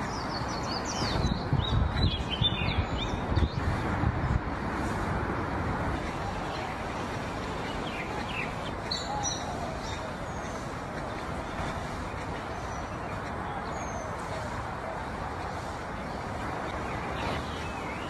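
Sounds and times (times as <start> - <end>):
high bird chirps: 0.0 - 3.7, 6.4 - 10.7
outdoor background noise: 0.0 - 18.0.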